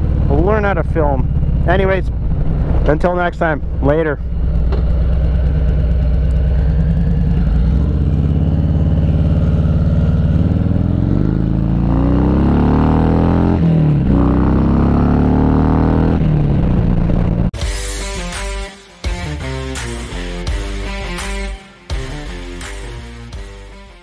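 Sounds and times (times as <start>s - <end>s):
motorcycle engine accelerating: 0.0s - 17.6s.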